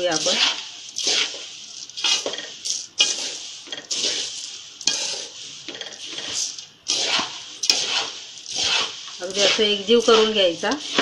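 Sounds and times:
spoon stirring dry mix in metal pot: 0:00.0 - 0:11.0.

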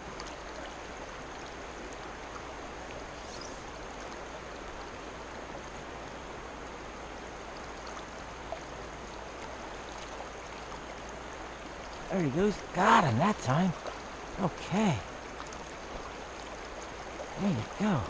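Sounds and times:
creek water rushing: 0:00.0 - 0:18.0.

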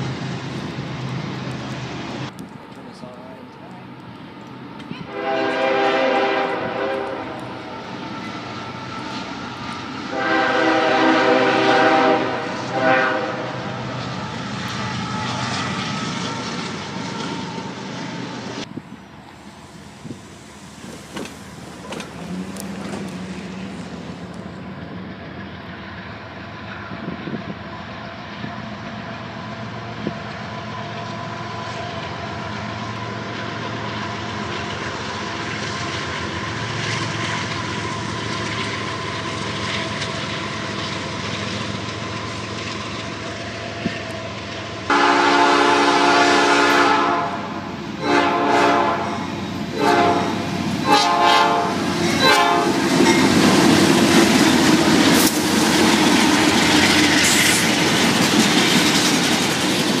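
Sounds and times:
freight cars rumbling and rattling: 0:00.0 - 0:10.2, 0:13.7 - 0:25.7, 0:51.6 - 1:00.0
locomotive engine drone: 0:00.0 - 1:00.0
train air horn blasts: 0:05.0 - 0:07.8, 0:10.1 - 0:13.9, 0:44.9 - 0:52.8
wheels clacking over rail joints: 0:20.0 - 0:25.6, 0:30.0 - 0:44.8, 0:49.3 - 1:00.0.

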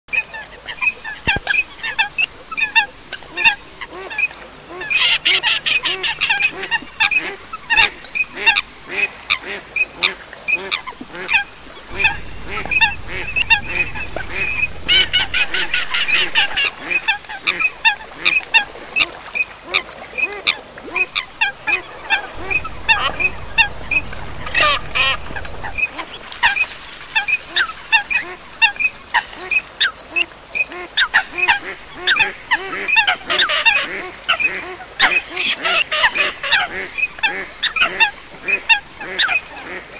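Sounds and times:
coots and ducks calling: 0:00.8 - 0:18.7.

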